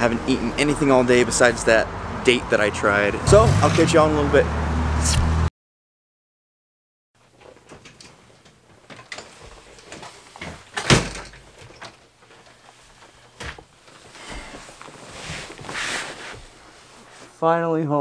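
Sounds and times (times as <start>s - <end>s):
clothing and backpack rustling: 7.2s - 10.8s, 11.4s - 17.4s.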